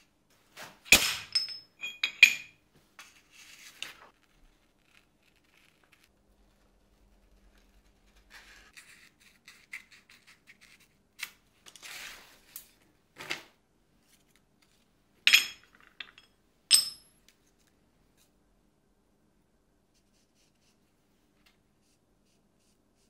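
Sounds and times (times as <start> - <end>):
paper rustling: 3.0 - 6.1.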